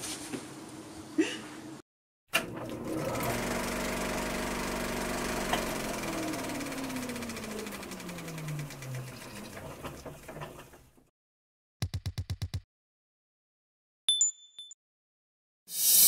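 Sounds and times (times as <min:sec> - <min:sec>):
motor hum: 0:02.4 - 0:10.8
film projector clatter: 0:02.4 - 0:10.9.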